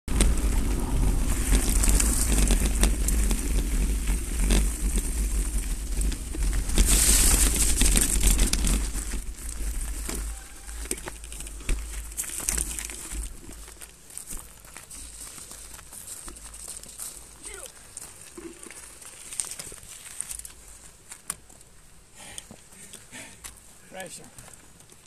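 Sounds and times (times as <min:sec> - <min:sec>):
wind buffeting microphone: 0:00.1 - 0:10.0
bike rattling knocks: 0:00.1 - 0:13.5
tyres crunching on gravel: 0:00.1 - 0:21.9.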